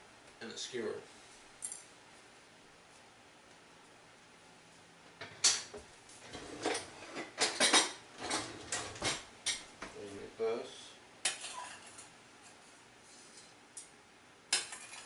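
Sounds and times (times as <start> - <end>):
utensils and dishes clattering: 6.3 - 9.6, 11.3 - 12.1, 14.6 - 15.0.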